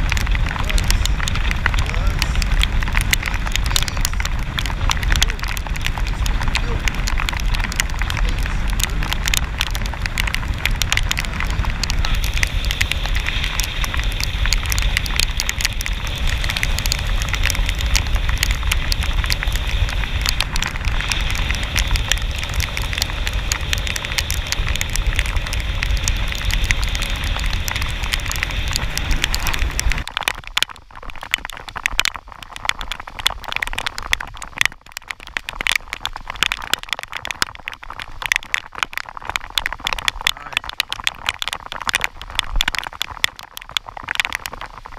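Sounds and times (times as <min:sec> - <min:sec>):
heavy rain on water: 0:00.0 - 0:44.9.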